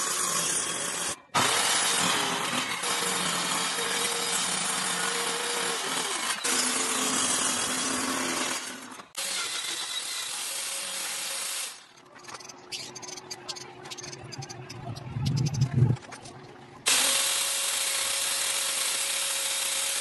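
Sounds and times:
circular saw cutting plywood: 0.0 - 11.8, 16.9 - 20.0
electric drill running: 16.9 - 20.0.

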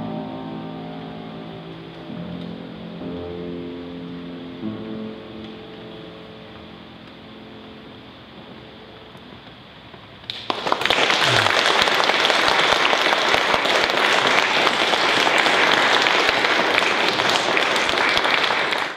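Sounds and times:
audience applauding: 10.3 - 18.9.

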